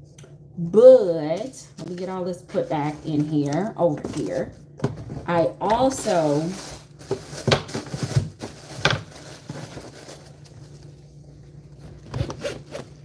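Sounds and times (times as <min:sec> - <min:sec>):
tissue paper crinkling: 0:05.8 - 0:12.0.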